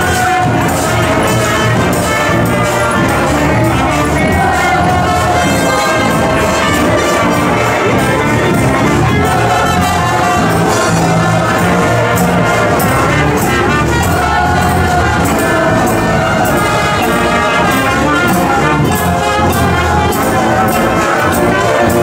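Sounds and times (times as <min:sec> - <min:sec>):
marching brass band: 0:00.0 - 0:22.0.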